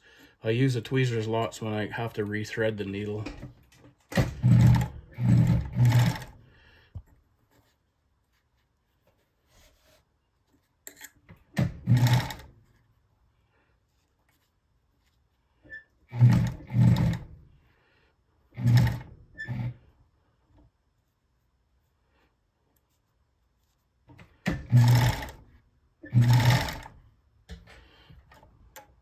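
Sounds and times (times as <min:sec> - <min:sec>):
sewing machine running: 0:04.2 - 0:06.4, 0:11.8 - 0:12.5, 0:16.1 - 0:17.4, 0:18.6 - 0:19.7, 0:24.6 - 0:25.4, 0:26.1 - 0:26.9.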